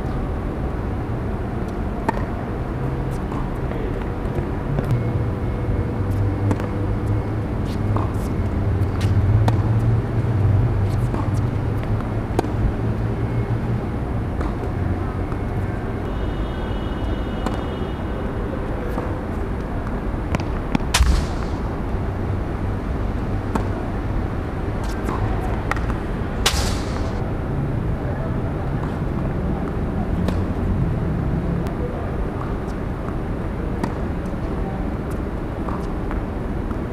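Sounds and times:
low background hum: 18.6s - 29.7s
tennis ball popping off rackets: 20.3s - 21.9s, 24.8s - 27.2s
low background rumble: 20.6s - 24.1s.

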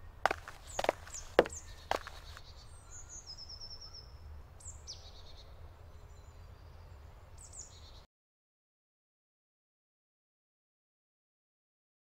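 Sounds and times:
small birds calling: 0.0s - 8.0s.

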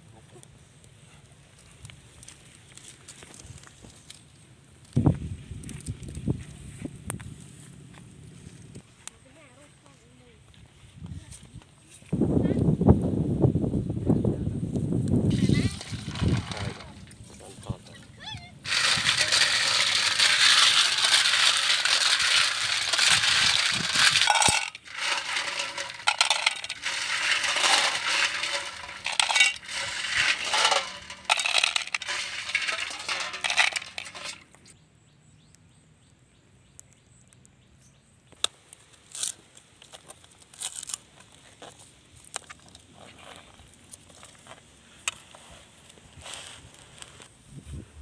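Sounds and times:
snail shells clattering in metal bowl: 15.3s - 17.3s, 18.7s - 34.5s.

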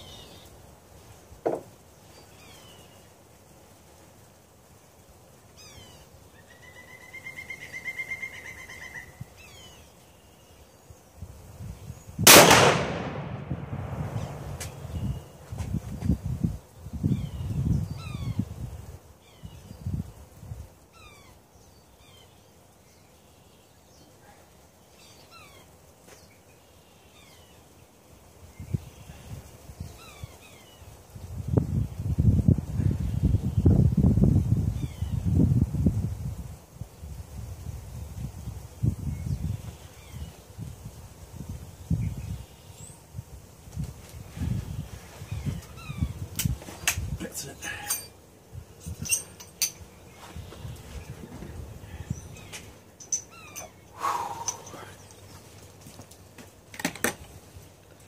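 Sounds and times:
small birds chirping: 0.0s - 12.2s, 14.0s - 37.2s, 37.9s - 58.0s
rifle shot with echo: 12.2s - 15.0s.

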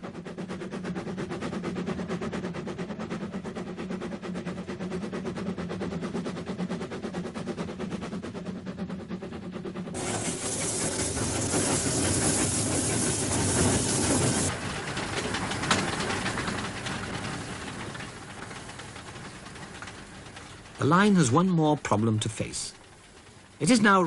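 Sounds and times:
steam locomotive exhaust beats: 0.0s - 24.0s
loud steam hiss: 10.0s - 14.6s.

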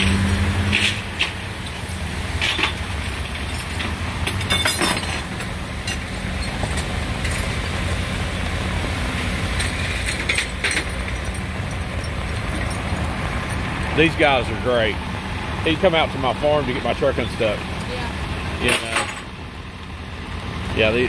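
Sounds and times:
truck engine rumbling: 0.0s - 21.0s
metallic clinks: 9.6s - 14.0s.

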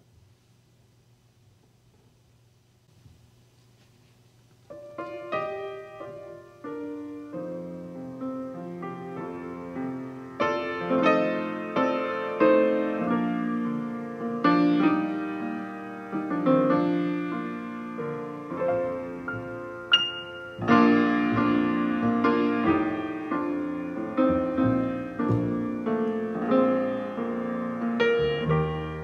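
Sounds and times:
grand piano: 4.6s - 29.0s
double bass: 24.2s - 26.2s, 28.0s - 29.0s.

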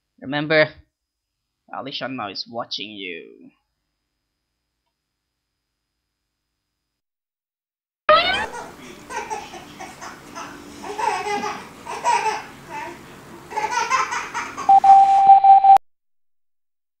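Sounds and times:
baby laughing and babbling: 8.1s - 14.7s
steady beep tone: 14.7s - 15.8s.

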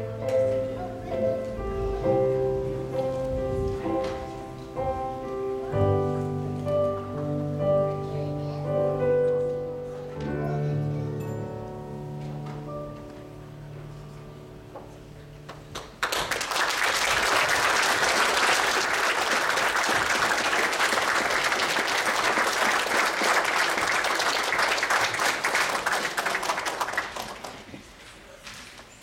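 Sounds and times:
held music notes: 0.0s - 15.8s
congregation applauding: 15.7s - 28.0s.

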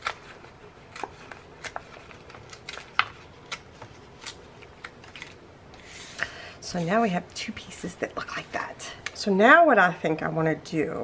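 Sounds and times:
cardstock tearing: 0.0s - 5.4s.

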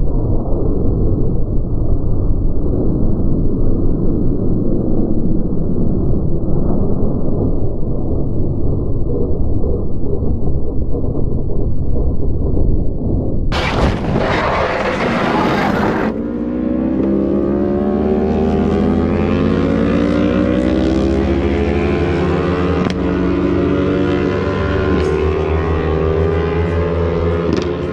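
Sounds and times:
engine running: 13.5s - 27.9s.

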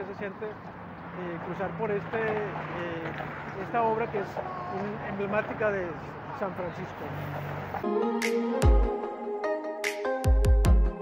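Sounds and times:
deep kick drum: 10.3s - 11.0s.

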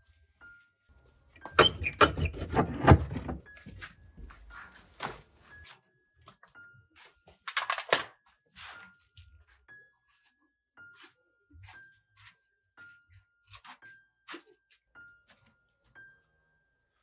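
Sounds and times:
wooden door clanking open: 1.5s - 3.5s.

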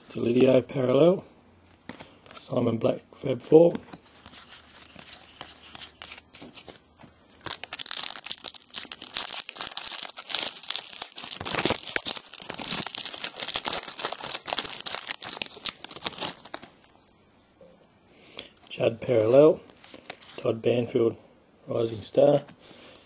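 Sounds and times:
foil wrapper crinkling: 4.3s - 16.9s.

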